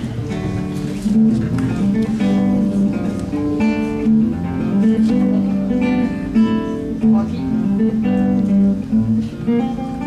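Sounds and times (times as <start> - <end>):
acoustic guitar chords: 0.0 - 10.0.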